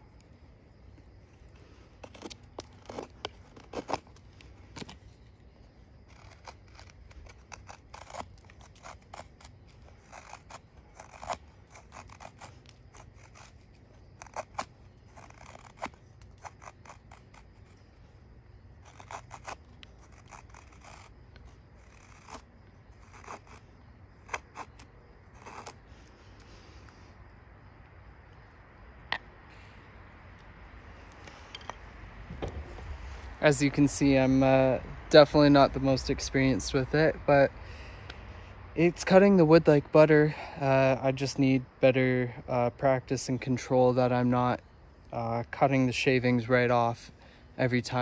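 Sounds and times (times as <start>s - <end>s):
knife scraping wood: 1.0s - 5.4s, 6.0s - 27.0s.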